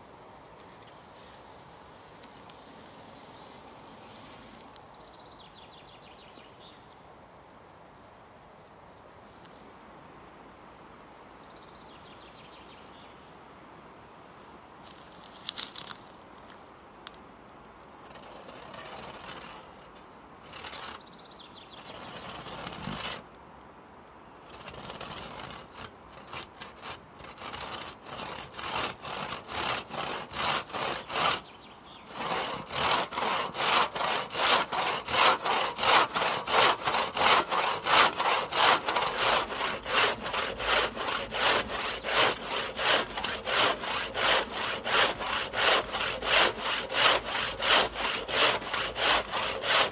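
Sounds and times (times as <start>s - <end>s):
crosscut saw cutting log: 18.1s - 19.6s, 24.6s - 31.5s, 32.1s - 49.9s.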